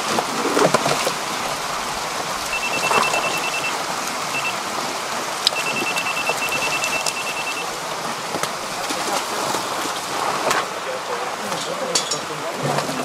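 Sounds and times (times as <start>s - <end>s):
water splashing hiss: 0.0s - 13.0s
electronic scale beeping: 2.5s - 4.6s, 5.5s - 7.7s.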